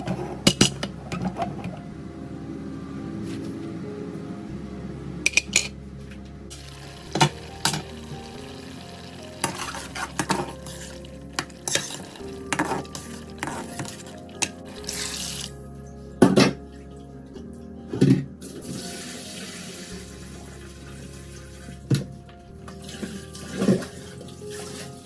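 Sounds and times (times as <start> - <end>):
light sizzle: 6.5 - 15.6
spatula scraping pot: 9.4 - 15.5.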